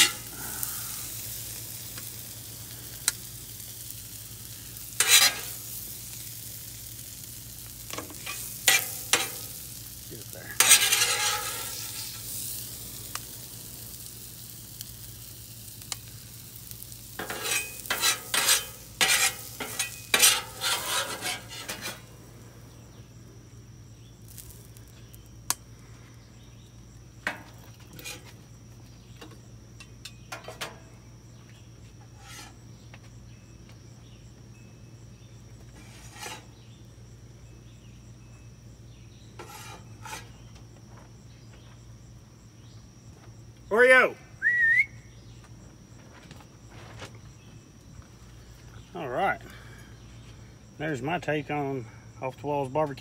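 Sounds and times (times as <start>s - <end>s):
metal spatula scraping griddle: 0.0s - 2.2s, 3.0s - 13.2s, 16.6s - 22.1s, 27.3s - 28.4s, 32.0s - 32.6s, 35.7s - 36.7s, 39.4s - 40.5s
vegetables sizzling: 0.0s - 23.2s, 24.1s - 25.5s.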